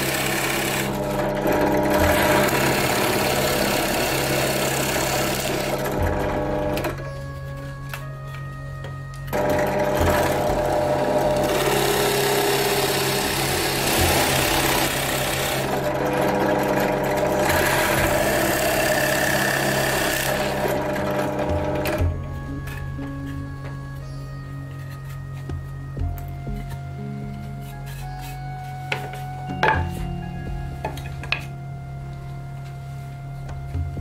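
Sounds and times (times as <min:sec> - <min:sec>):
drill bit cutting wood: 0:00.0 - 0:06.8, 0:09.3 - 0:22.0
drill press motor humming: 0:00.0 - 0:07.2, 0:08.8 - 0:23.8.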